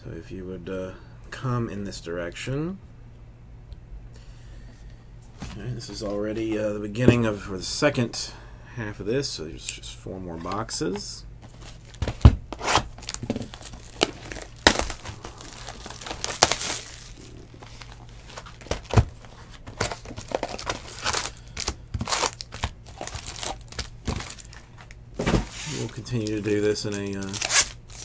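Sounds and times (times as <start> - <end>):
foil packs handled: 11.4 - 28.0
plastic shrink wrap crinkling: 11.5 - 28.0.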